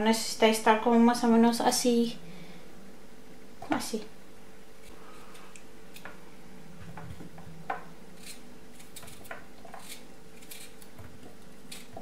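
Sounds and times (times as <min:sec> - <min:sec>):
knife cutting potato: 0:08.1 - 0:12.0.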